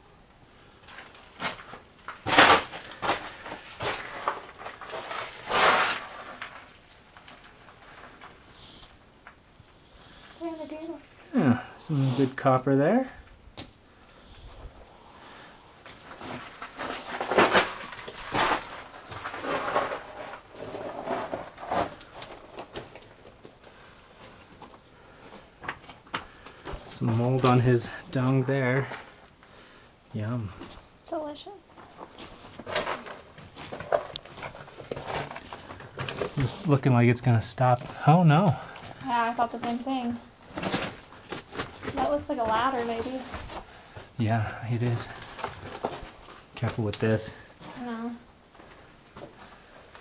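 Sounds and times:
footsteps on loose rock: 1.2s - 8.2s, 15.9s - 27.7s, 31.8s - 36.7s, 37.8s - 44.1s, 44.8s - 47.8s
loud scrapes: 2.2s - 6.5s, 16.2s - 22.1s.

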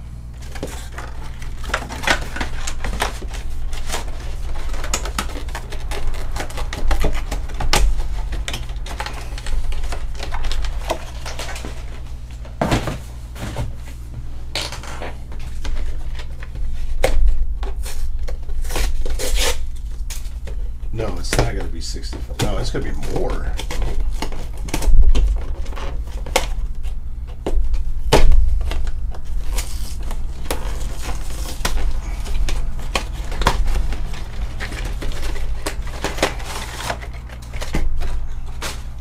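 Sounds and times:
low steady hum: 0.0s - 39.0s
cardboard box and plastic handled: 14.6s - 39.0s.

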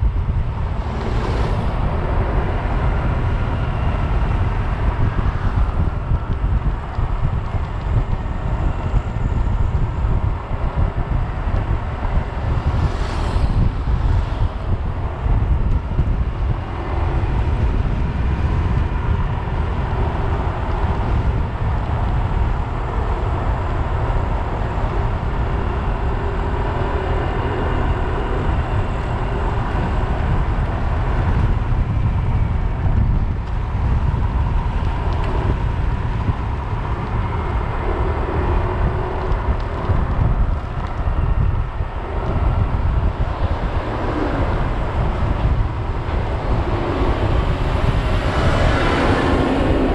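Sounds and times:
wind rushing over microphone: 0.0s - 49.9s.

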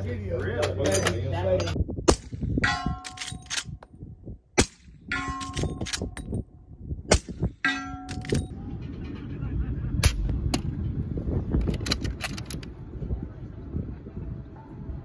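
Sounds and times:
steel target ringing: 5.1s - 5.8s, 7.6s - 8.5s.

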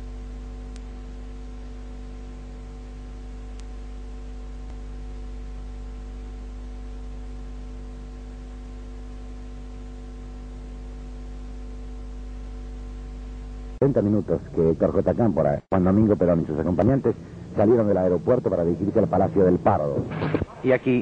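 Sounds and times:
background hiss: 0.0s - 21.0s
electrical mains hum with tones: 0.0s - 21.0s
faint click: 0.7s - 0.9s, 3.5s - 3.7s.

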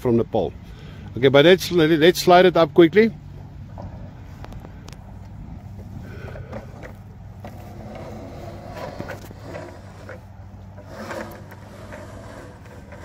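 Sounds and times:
ladder clicking and scraping: 6.1s - 13.0s.

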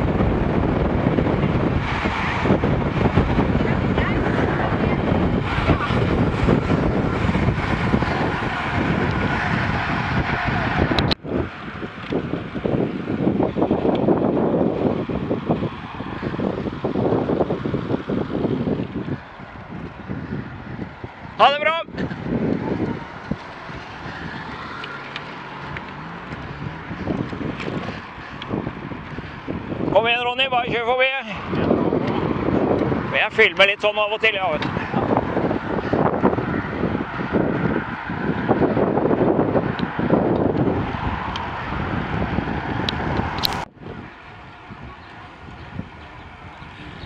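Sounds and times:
tyre and road noise: 0.0s - 47.0s
wind buffeting microphone: 0.0s - 47.0s
short click: 43.4s - 43.7s.

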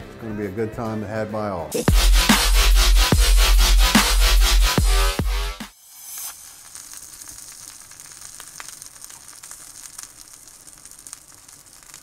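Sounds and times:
steady sizzling hiss: 5.7s - 12.0s
faint crackles: 6.1s - 12.0s.

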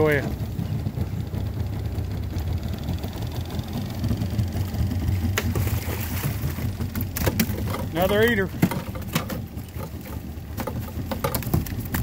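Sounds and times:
boat motor idling: 0.0s - 12.0s
fish splashing out of water: 5.3s - 7.6s.

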